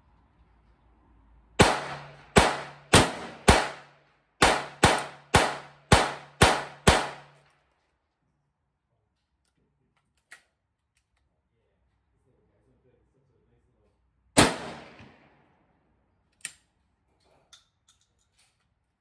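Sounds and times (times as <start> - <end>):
rapid gunshots: 1.6 - 3.8, 4.4 - 7.3.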